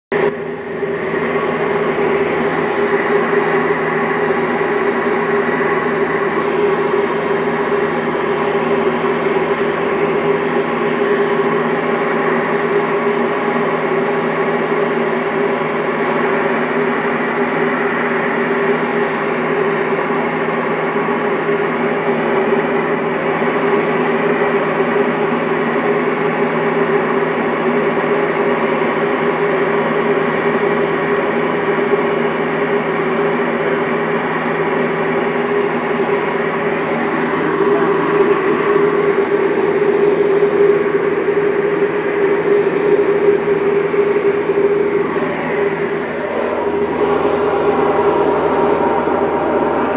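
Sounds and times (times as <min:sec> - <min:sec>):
light aircraft engine droning: 0:00.1 - 0:49.9
rushing noise: 0:36.3 - 0:49.9.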